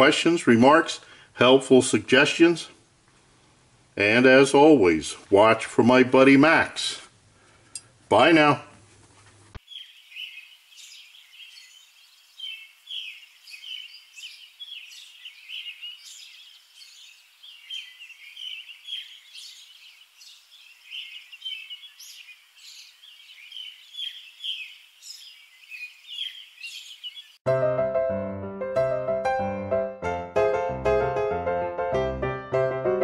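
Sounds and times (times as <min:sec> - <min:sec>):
birds chirping: 0:09.6 - 0:27.4.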